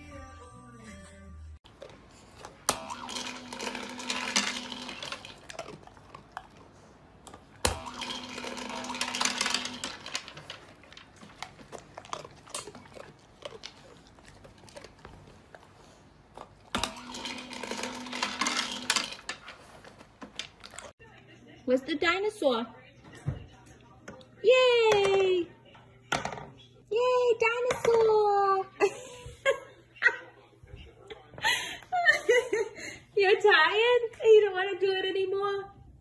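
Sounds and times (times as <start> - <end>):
dry food rattling into tray: 7.7 - 13.8, 16.7 - 20.9.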